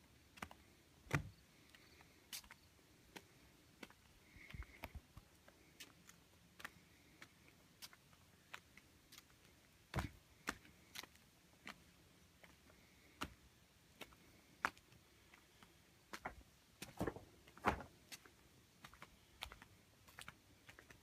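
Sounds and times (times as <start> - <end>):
footsteps on stone: 16.1 - 18.2.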